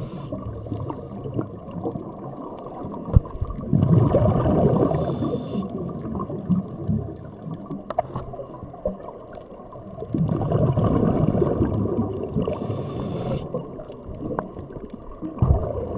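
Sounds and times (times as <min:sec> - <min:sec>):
regulator inhalation hiss: 0:00.0 - 0:01.0, 0:04.8 - 0:05.7, 0:12.4 - 0:13.6
bubbles gurgling underwater: 0:00.0 - 0:15.9.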